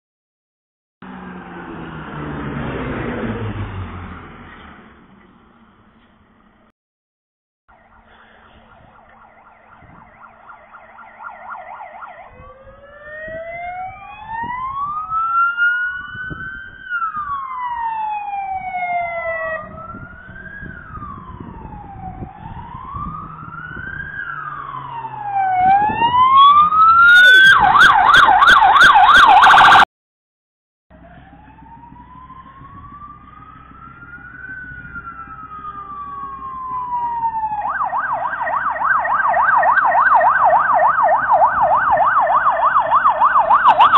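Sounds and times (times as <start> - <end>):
siren slow wail: 1.0 - 4.4, 7.7 - 29.9, 30.9 - 43.9
vehicle engines rumbling: 1.0 - 6.7, 7.7 - 29.8, 30.9 - 43.9
siren fast yelp: 7.7 - 29.9, 31.4 - 43.9.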